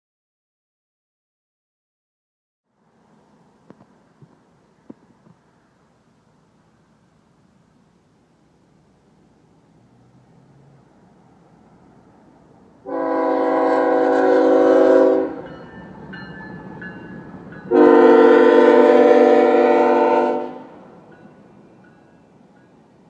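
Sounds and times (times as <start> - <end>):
train rumble: 2.7 - 23.0
locomotive air horn blasts: 12.8 - 15.5, 17.7 - 20.9.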